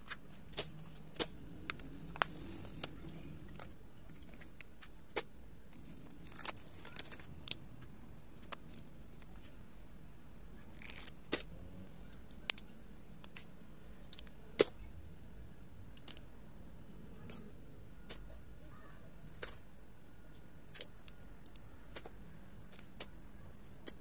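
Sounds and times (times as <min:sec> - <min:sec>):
plastic packaging crinkling: 0:05.8 - 0:07.6.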